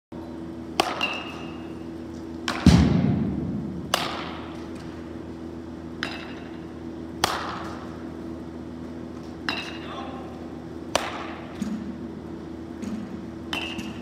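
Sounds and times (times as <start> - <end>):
steady low hum: 0.1 - 14.0
bats cracking balls: 3.9 - 5.0, 10.9 - 11.8.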